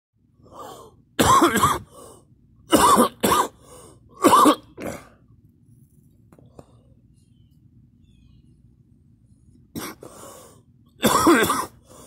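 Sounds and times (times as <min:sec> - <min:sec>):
person coughing hard: 0:01.2 - 0:01.9, 0:02.7 - 0:03.6, 0:04.2 - 0:05.2, 0:09.8 - 0:10.1, 0:11.0 - 0:11.9.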